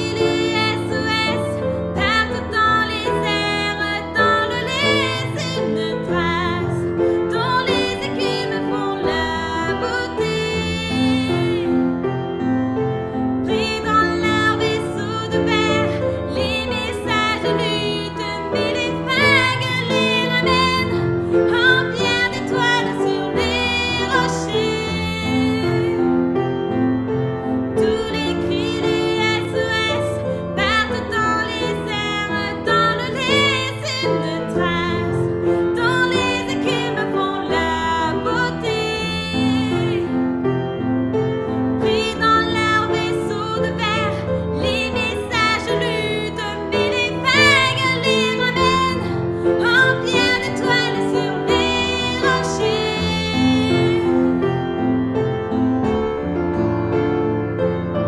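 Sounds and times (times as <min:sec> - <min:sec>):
person singing: 0:00.0 - 0:11.8
piano and backing chords: 0:00.0 - 0:58.0.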